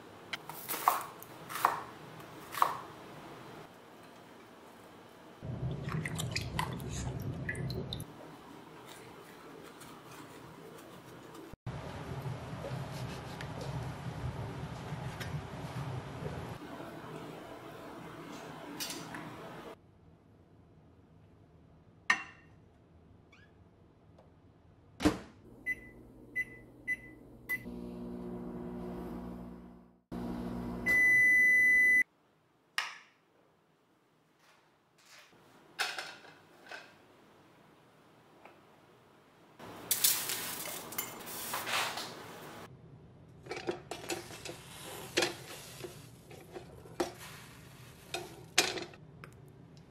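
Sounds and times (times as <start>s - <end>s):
microwave oven humming: 25.5s - 32.0s
long beep: 30.9s - 32.0s.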